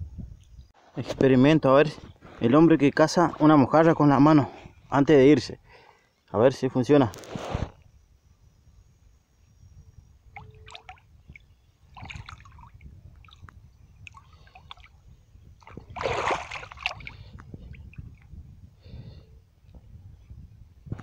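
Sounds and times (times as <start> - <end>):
hand splashing in water: 15.6 - 17.2.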